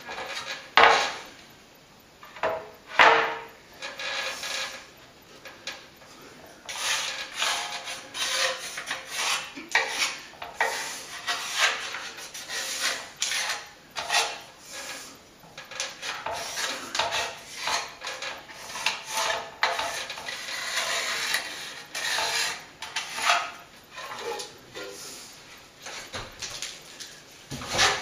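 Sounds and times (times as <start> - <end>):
pencil scratching on plaster: 6.7 - 15.1, 15.8 - 24.2.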